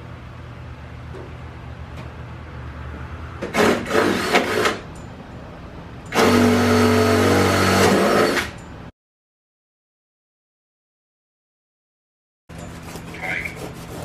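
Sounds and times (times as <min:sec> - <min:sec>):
cordless drill drilling: 0:03.6 - 0:04.8, 0:06.1 - 0:08.5.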